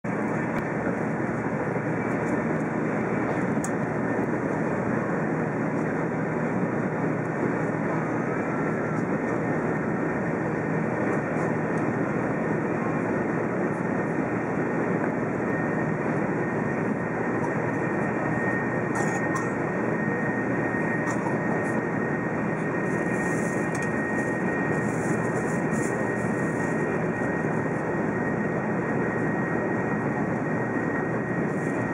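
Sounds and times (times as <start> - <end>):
train running at speed: 15.0 - 28.9.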